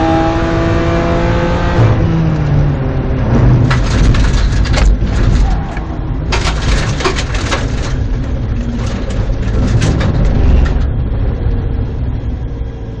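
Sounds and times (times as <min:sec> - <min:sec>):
race car engine inside cabin: 0:00.0 - 0:13.0
sharp clicks and rattles: 0:03.6 - 0:11.0.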